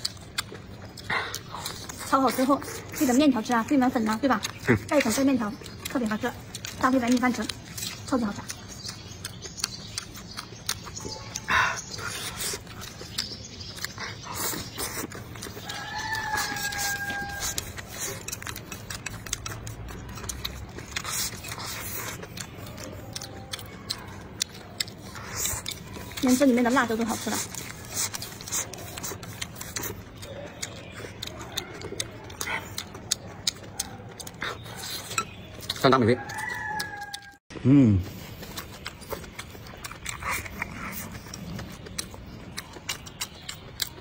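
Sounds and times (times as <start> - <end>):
chewing: 0.0 - 37.4, 38.0 - 44.0
chopsticks clicking: 14.7 - 37.3.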